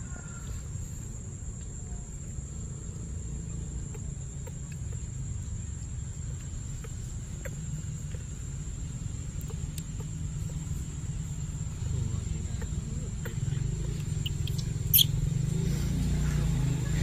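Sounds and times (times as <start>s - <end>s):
low outdoor rumble: 0.0s - 17.0s
faint ticks: 3.8s - 5.3s, 9.2s - 10.9s.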